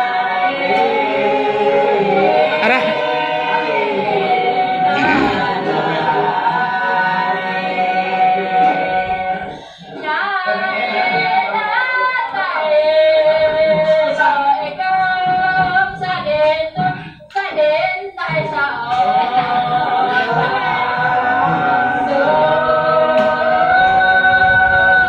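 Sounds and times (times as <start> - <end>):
woman singing long notes: 2.5 - 3.0.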